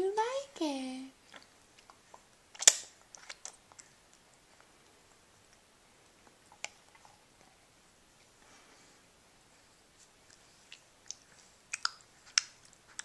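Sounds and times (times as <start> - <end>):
baby eating wet smacks: 1.2 - 7.6, 10.2 - 13.0.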